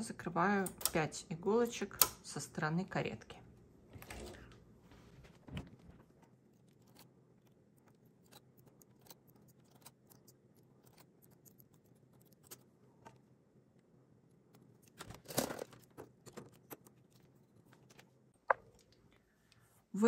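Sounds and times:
metal tool clicking on needles: 0.5s - 2.3s.

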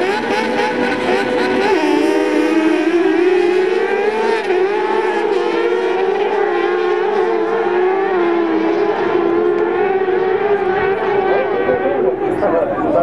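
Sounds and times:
racing buggy engines at high revs: 0.0s - 13.0s.

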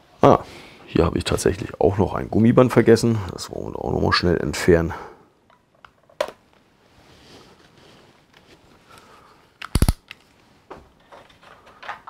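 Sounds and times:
sharp plastic clicks: 9.6s - 10.2s.

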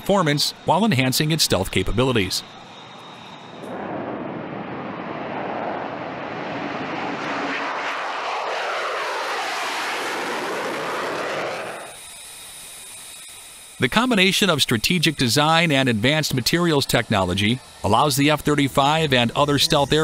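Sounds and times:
jet engine flying past: 0.0s - 20.0s.

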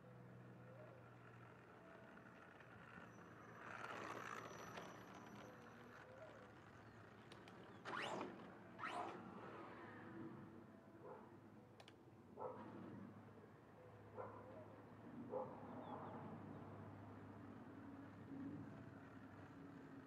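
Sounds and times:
rc car electric motor: 2.2s - 10.2s
rc car whooshes: 7.8s - 10.4s.

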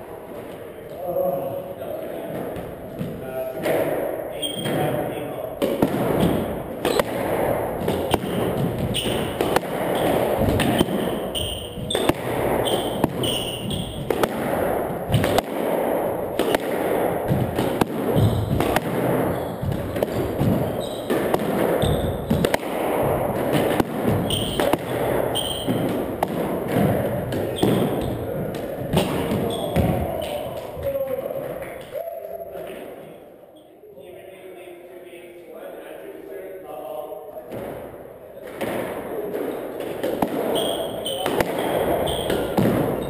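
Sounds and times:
sneakers squeaking: 4.4s - 4.9s, 6.0s - 7.2s, 7.8s - 15.4s, 17.3s - 30.8s, 39.4s - 43.0s
squash ball cracking: 5.6s - 30.7s, 37.5s - 43.0s
footsteps on hardwood floor: 17.3s - 21.1s.

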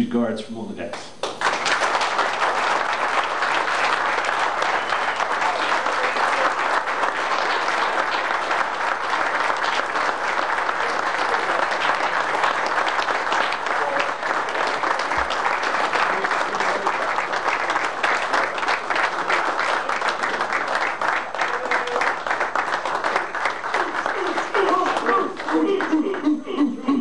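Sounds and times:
people applauding: 1.2s - 27.0s.

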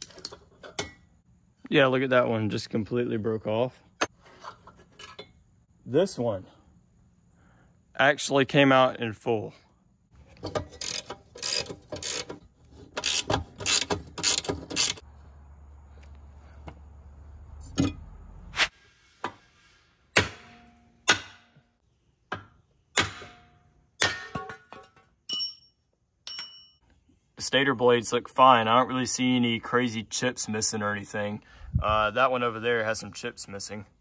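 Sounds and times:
hand tools clicking on metal: 10.4s - 15.0s
metal part clinking: 24.3s - 26.8s.

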